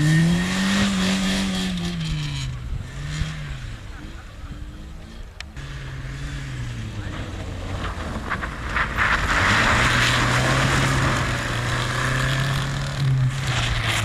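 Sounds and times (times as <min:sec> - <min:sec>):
car engine at high revs: 0:00.0 - 0:14.0
tyres spinning and snow thrown: 0:07.2 - 0:14.0.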